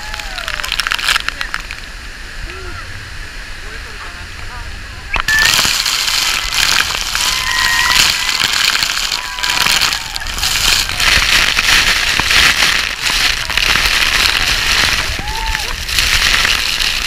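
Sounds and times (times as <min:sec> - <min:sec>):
water spray pelting microphone: 0:03.7 - 0:17.0
people shouting: 0:05.3 - 0:11.4, 0:14.2 - 0:16.0.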